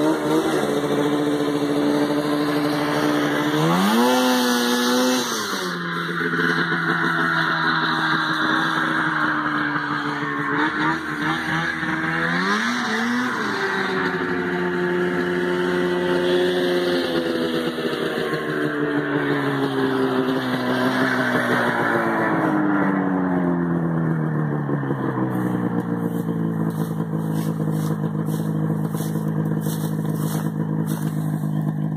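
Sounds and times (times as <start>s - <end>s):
quad engine running: 0.0s - 31.9s.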